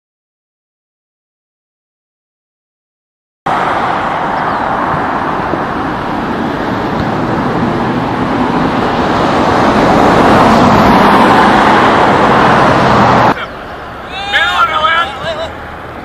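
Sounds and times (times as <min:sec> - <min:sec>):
loud steady rushing noise: 0:03.5 - 0:16.0.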